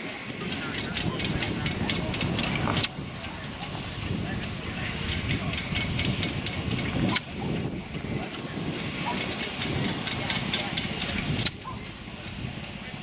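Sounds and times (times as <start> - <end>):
gas engines clicking and rumbling: 0.0 - 13.0.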